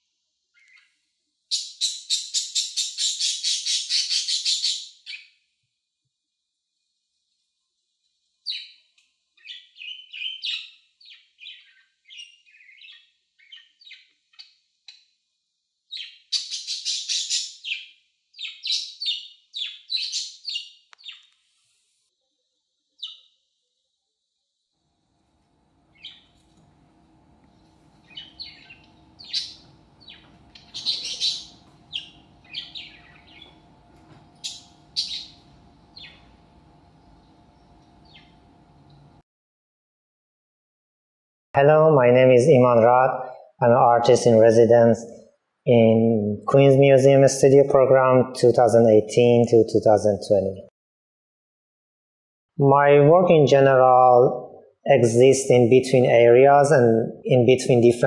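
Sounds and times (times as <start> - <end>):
budgerigars chirping and trilling: 0.6 - 0.9, 1.5 - 5.3, 8.5 - 8.8, 9.4 - 14.6, 15.9 - 21.3, 25.9 - 26.3, 28.0 - 33.8, 34.4 - 36.3, 37.1 - 38.4
steady low hum: 24.9 - 39.2.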